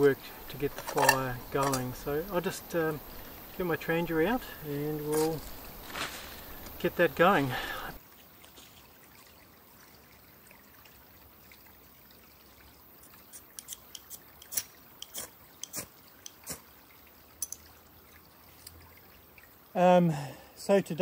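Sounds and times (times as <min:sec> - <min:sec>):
stream trickling: 0:00.0 - 0:21.0
stove parts clicking and tapping: 0:00.5 - 0:02.0, 0:13.6 - 0:16.5, 0:17.4 - 0:17.6.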